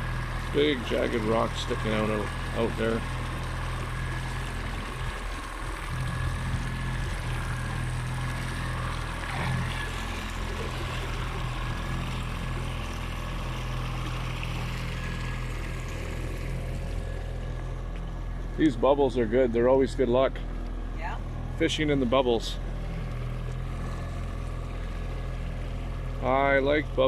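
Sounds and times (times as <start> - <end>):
water rushing: 0.0 - 20.4
boat engine humming: 0.0 - 27.0
wind: 0.0 - 27.0.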